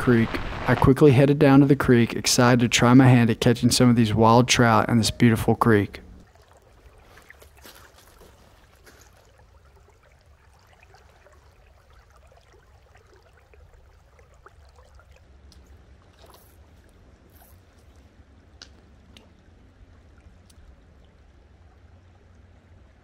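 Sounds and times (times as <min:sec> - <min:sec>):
low rumble: 0:00.0 - 0:02.2
water trickling over gravel: 0:06.2 - 0:22.4.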